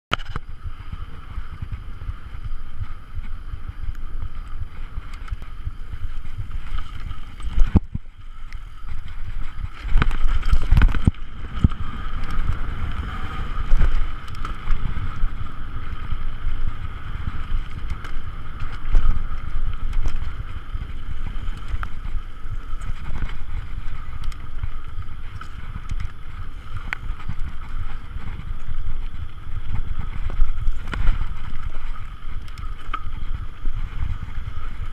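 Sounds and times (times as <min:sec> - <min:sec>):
bike knocking and rattling: 0:00.1 - 0:34.9
wind buffeting microphone: 0:00.1 - 0:34.9
tyres rumbling on dirt: 0:08.6 - 0:33.6.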